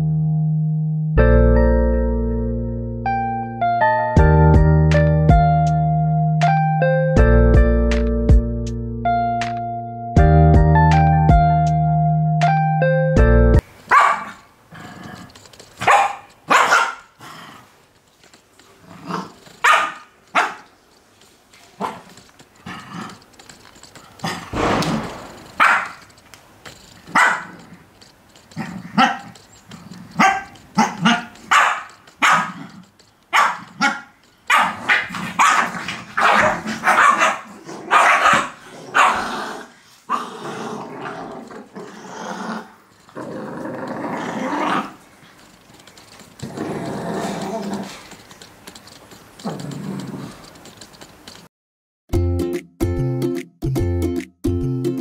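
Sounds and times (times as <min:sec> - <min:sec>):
puppies yapping and growling: 0:28.5 - 0:48.3.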